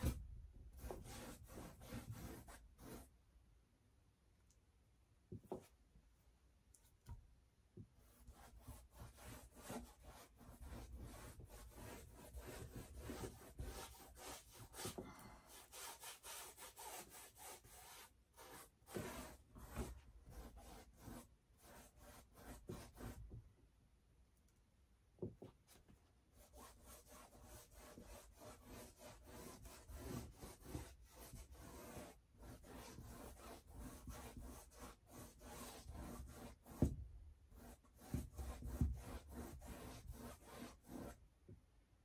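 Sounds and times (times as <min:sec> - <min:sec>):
paintbrush scrubbing on canvas: 0:00.8 - 0:03.1, 0:08.0 - 0:23.2, 0:26.4 - 0:41.2.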